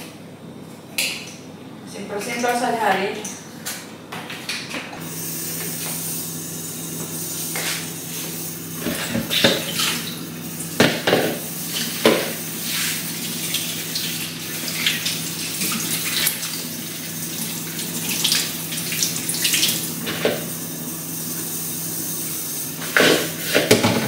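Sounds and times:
tap running into metal sink: 8.8 - 10.0.

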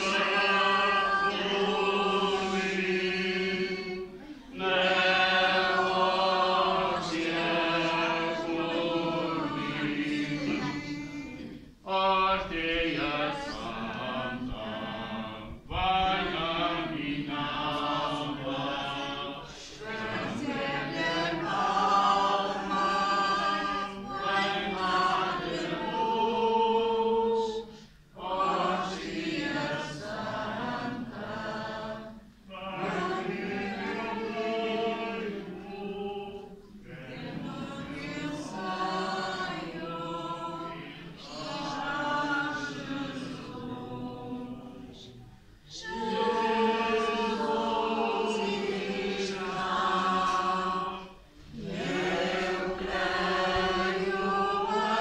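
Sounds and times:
group singing a hymn: 0.0 - 55.0.

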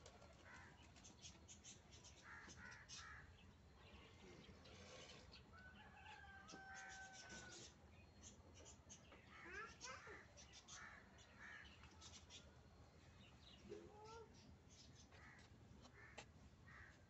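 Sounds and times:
small birds chirping: 0.1 - 16.9
rooster crowing: 5.5 - 7.6.

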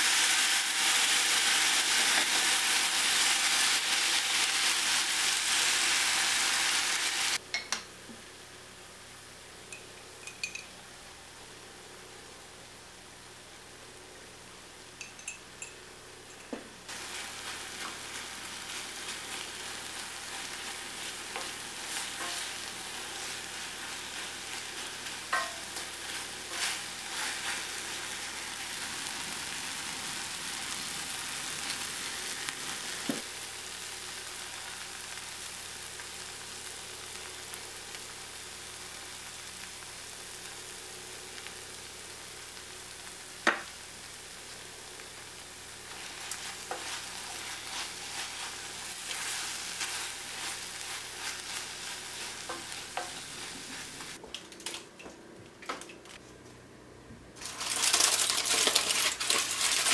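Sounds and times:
food sizzling in a pan: 0.0 - 7.4, 16.8 - 54.2, 57.4 - 59.9
utensil scraping against pan: 24.2 - 27.6, 45.9 - 54.2.

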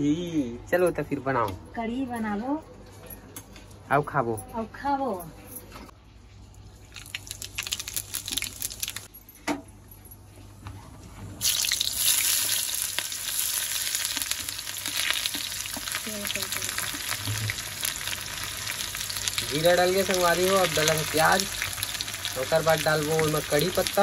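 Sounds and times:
seeds crackling in hot oil: 6.8 - 9.1, 11.4 - 24.0
onion sizzling in oil: 7.0 - 9.1, 11.4 - 24.0.

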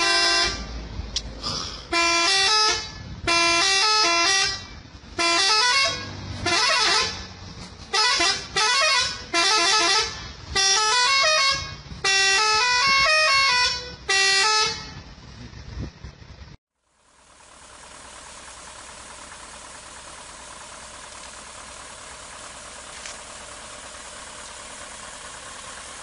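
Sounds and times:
musical air horn blasts: 0.0 - 0.8, 1.8 - 15.1.

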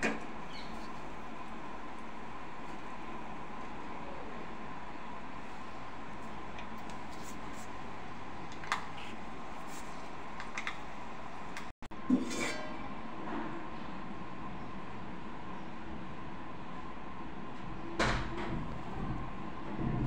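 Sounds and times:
gas burner hissing: 0.0 - 11.7.

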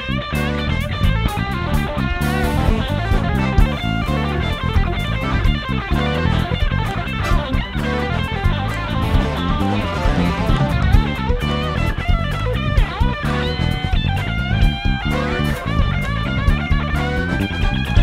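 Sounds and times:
drum kit: 0.0 - 18.0
electric guitar line: 0.0 - 18.0.

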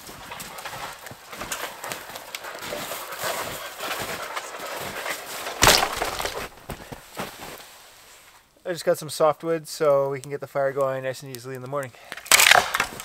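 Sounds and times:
dry wood cracking: 0.0 - 7.7, 9.0 - 13.0
footsteps crunching in snow: 0.0 - 8.5.

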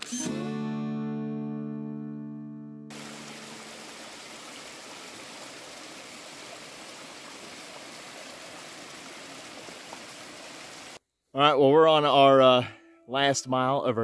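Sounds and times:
background music chord: 0.1 - 3.2
stream rushing over rocks: 2.9 - 11.0.

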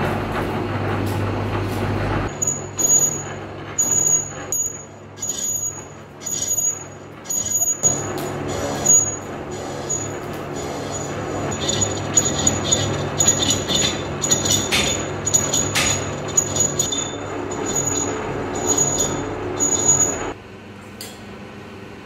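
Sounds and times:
lathe motor and belt hum: 0.0 - 20.6
metal squealing and scraping: 2.2 - 20.4.

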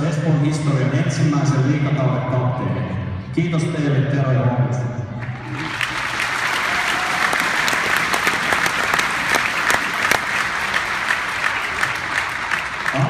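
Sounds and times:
crowd applauding: 5.2 - 13.0.

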